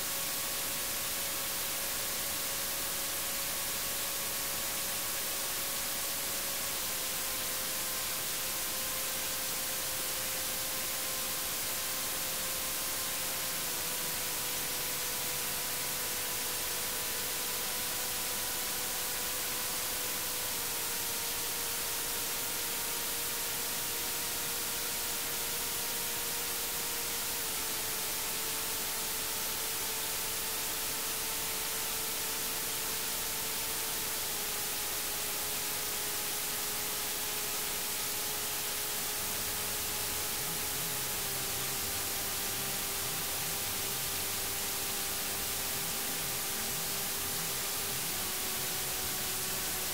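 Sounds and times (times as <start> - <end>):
bright static hiss: 0.0 - 49.9.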